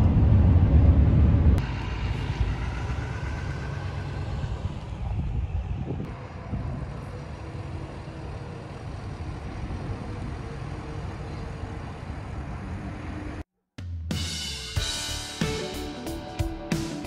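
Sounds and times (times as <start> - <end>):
truck engine low rumble: 0.0 - 13.4.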